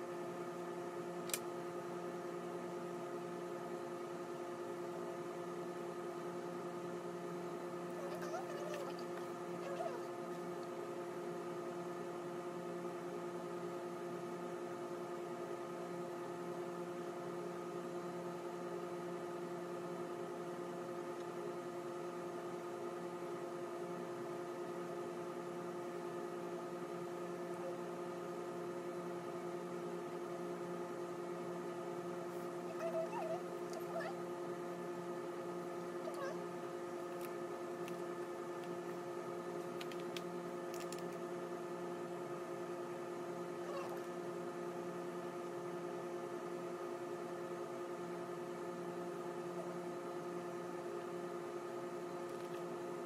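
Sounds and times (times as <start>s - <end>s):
steady multi-tone hum: 0.0s - 53.0s
sharp click: 1.2s - 1.5s.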